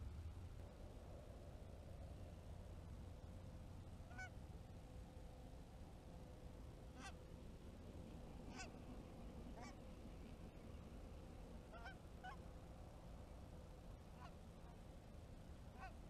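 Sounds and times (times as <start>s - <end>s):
low steady rumble: 0.0s - 16.0s
distant geese honking: 4.0s - 4.4s, 6.9s - 7.2s, 8.3s - 12.6s, 13.9s - 14.9s, 15.6s - 16.0s.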